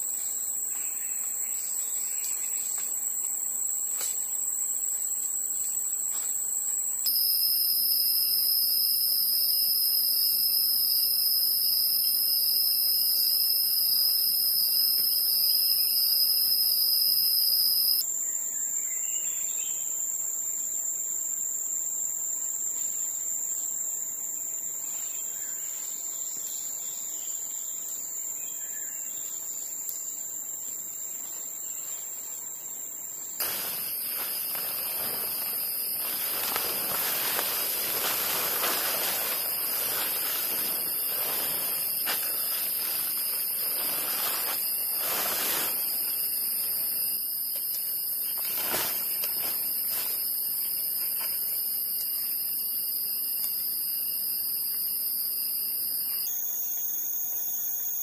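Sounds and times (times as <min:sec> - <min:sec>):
insect chorus buzzing: 0:00.0 - 0:58.0
tent fabric rustling: 0:33.4 - 0:46.9, 0:48.4 - 0:50.2.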